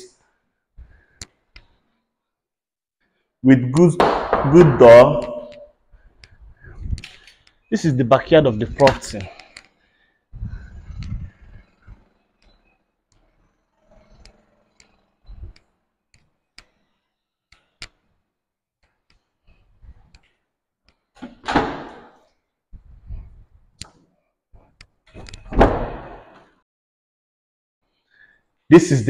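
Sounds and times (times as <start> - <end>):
wooden door pushed and knocked: 21.2 - 22.2, 25.2 - 26.4.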